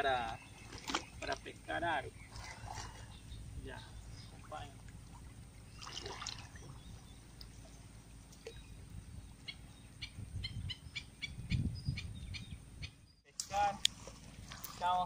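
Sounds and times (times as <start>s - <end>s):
water sloshing from wading: 0.0s - 10.3s, 13.3s - 15.0s
bird chirping: 0.0s - 13.3s.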